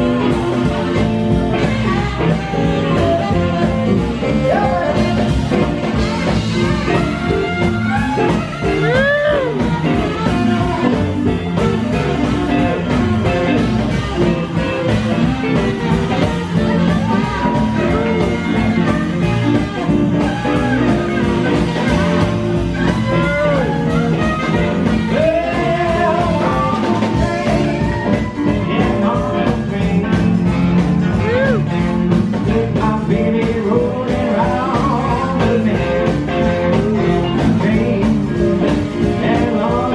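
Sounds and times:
drums: 0:00.0 - 0:39.9
hand drums: 0:00.0 - 0:39.9
saxophone: 0:00.0 - 0:39.9
upright bass: 0:00.0 - 0:39.9.

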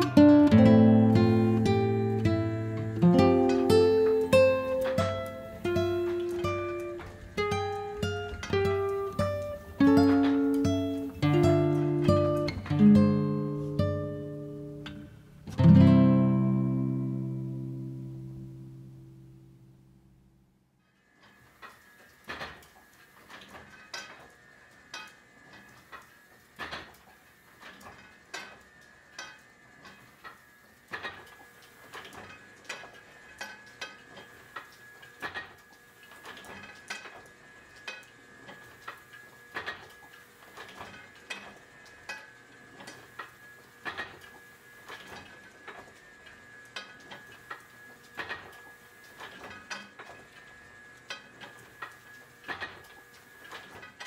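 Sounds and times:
thin steady whine: 0:00.0 - 0:54.0
printing press clacking: 0:00.1 - 0:13.7.

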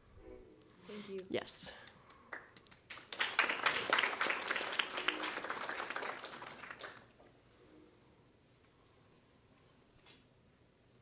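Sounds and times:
audience applauding: 0:02.3 - 0:07.2.

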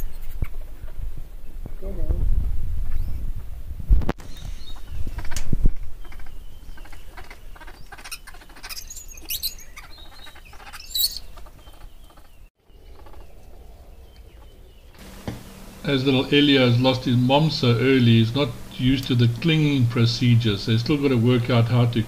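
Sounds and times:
birds chirping: 0:02.8 - 0:03.6, 0:04.2 - 0:22.0
low rumble: 0:12.7 - 0:22.0.

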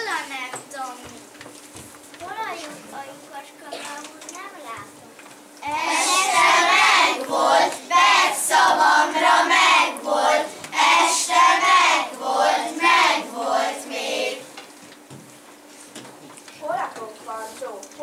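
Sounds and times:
children chanting in unison: 0:05.6 - 0:14.5.

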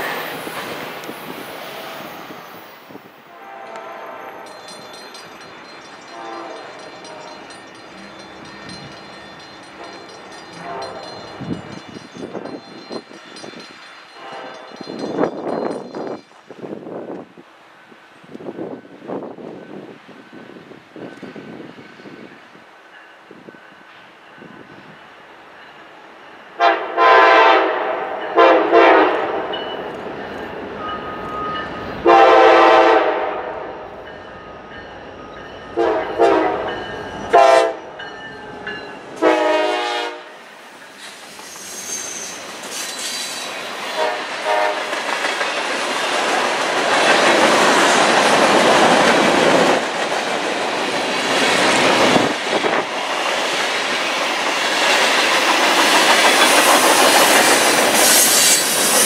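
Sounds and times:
locomotive air horn blasts: 0:03.3 - 0:04.4, 0:06.1 - 0:07.4, 0:10.6 - 0:11.2, 0:14.2 - 0:14.7, 0:26.6 - 0:29.4, 0:32.0 - 0:33.8, 0:35.8 - 0:36.7, 0:37.3 - 0:37.9, 0:39.2 - 0:40.4, 0:44.0 - 0:44.9
train wheels clattering on rails: 0:03.7 - 0:17.4, 0:40.6 - 0:59.0.

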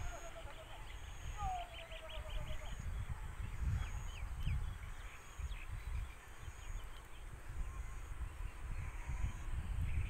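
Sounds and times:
bird chirps: 0:00.0 - 0:03.1
wind buffeting microphone: 0:00.0 - 0:10.0.

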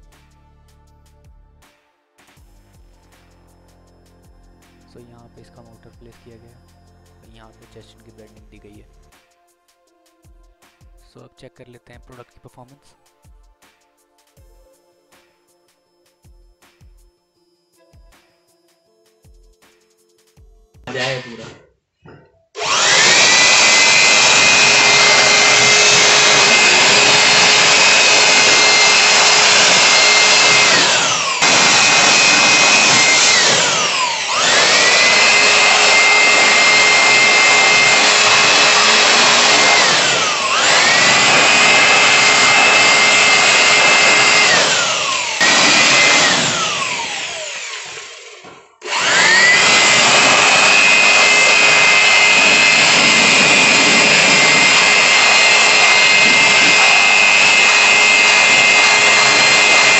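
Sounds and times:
electric air blower whining: 0:20.9 - 0:21.6, 0:22.6 - 0:59.9.

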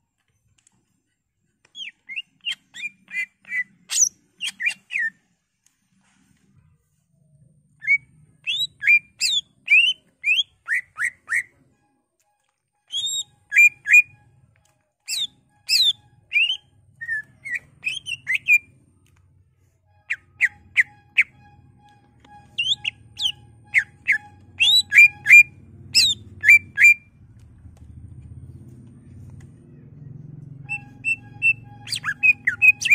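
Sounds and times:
bird singing whistled chirps: 0:07.8 - 0:11.5, 0:12.9 - 0:14.1, 0:15.1 - 0:18.7, 0:22.2 - 0:27.0, 0:30.7 - 0:32.9.

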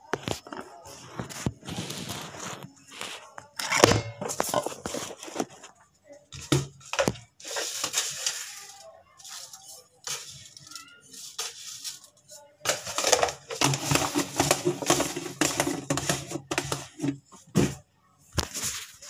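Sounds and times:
rustling and scraping: 0:00.0 - 0:17.8, 0:18.4 - 0:19.0
kitchen utensils clattering: 0:03.5 - 0:05.7, 0:06.4 - 0:12.0, 0:12.7 - 0:17.8.

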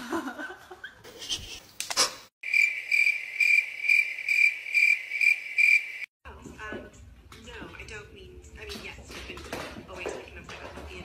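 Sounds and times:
high-pitched cricket-like chirping: 0:02.4 - 0:06.1.

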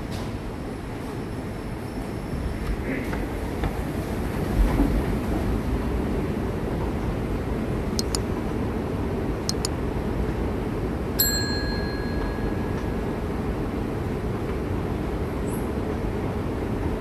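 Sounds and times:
moving walkway rumble: 0:00.0 - 0:17.0
mouse clicks: 0:08.0 - 0:08.2, 0:09.5 - 0:09.7
notification bell ding: 0:11.2 - 0:13.1.

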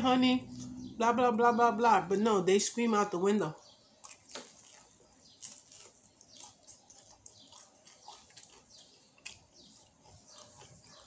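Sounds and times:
chewing crispy food: 0:03.6 - 0:11.0.

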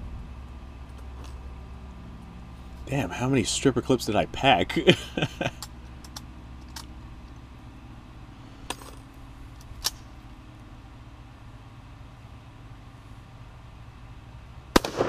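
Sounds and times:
steady low hum: 0:00.0 - 0:15.0
rifle metallic clicks: 0:09.6 - 0:10.0.

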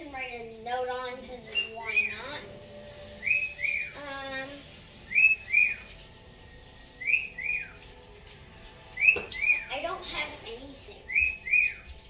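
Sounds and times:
two-note whistled chirp: 0:03.0 - 0:04.0, 0:05.0 - 0:05.9, 0:06.9 - 0:07.8, 0:09.0 - 0:09.7, 0:11.1 - 0:11.9.

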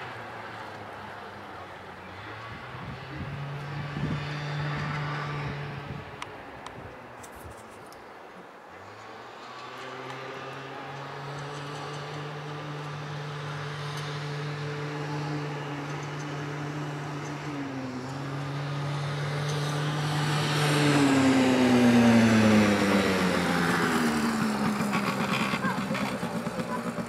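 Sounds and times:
small atv engine running: 0:08.8 - 0:27.0.

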